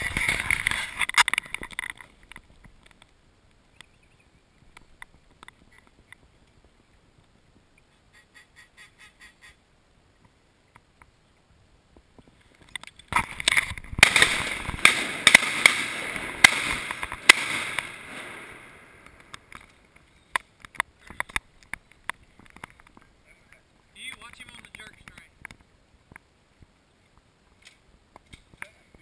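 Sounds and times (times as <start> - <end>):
sharp cracks: 0.0 - 3.9, 12.5 - 23.1
duck quacking: 7.9 - 9.6.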